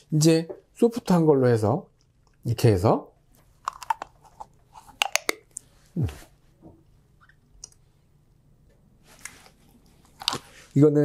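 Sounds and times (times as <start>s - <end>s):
wet mouth clicks and smacks: 3.6s - 4.2s, 4.8s - 5.6s
short low vocal sound: 6.0s - 6.3s.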